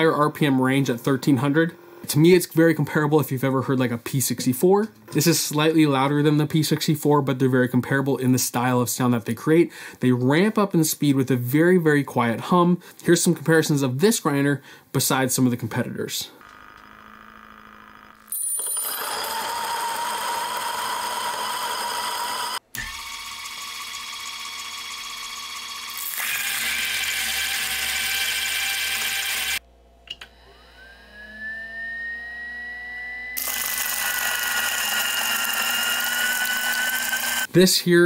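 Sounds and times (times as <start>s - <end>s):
electric coffee grinder whine: 16.4s - 29.6s, 30.2s - 37.5s.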